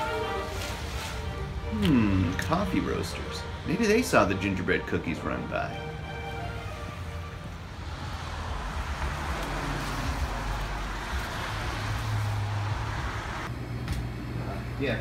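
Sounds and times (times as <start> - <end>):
tyres hissing on wet road: 0.0 - 3.0, 6.6 - 13.5
low traffic rumble: 0.0 - 15.0.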